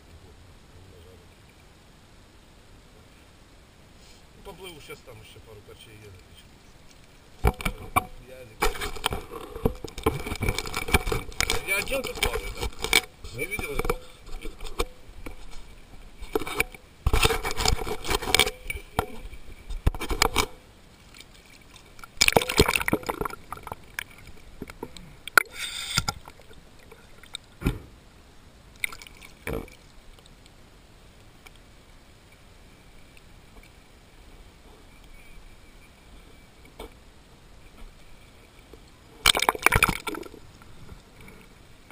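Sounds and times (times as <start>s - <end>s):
faint water hiss: 0.0s - 41.9s
water splashing and sloshing: 6.2s - 28.0s, 28.7s - 30.5s, 38.4s - 41.9s.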